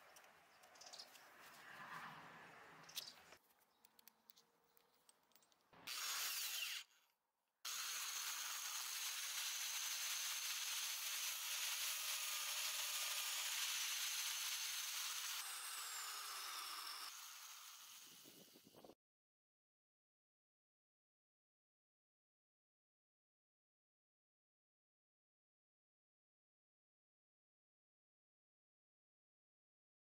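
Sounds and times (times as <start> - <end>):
electric drill boring into wood: 5.8 - 7.0, 7.7 - 18.8.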